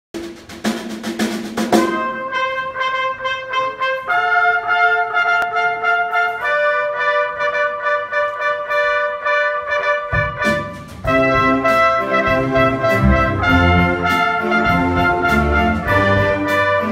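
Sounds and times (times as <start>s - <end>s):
drum strikes: 0.2s - 2.5s, 10.0s - 16.9s
big band brass playing chords: 0.2s - 16.9s.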